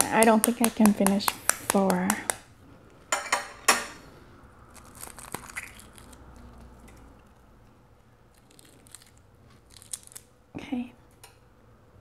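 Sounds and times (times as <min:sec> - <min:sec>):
eggshell cracking: 0:00.0 - 0:02.4, 0:04.7 - 0:07.0, 0:08.3 - 0:10.4.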